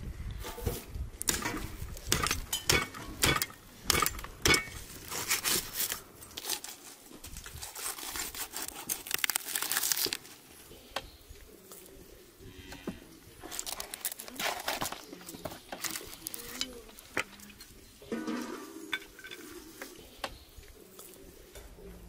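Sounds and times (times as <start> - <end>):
crinkling and crackling: 4.7 - 11.0, 12.6 - 17.8.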